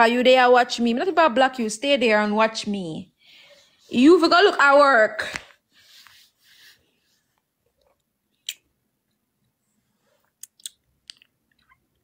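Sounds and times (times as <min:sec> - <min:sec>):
mouth clicks and smacks: 0:07.8 - 0:08.8, 0:10.2 - 0:12.0
soft mouth noise: 0:08.4 - 0:08.7, 0:10.2 - 0:12.0.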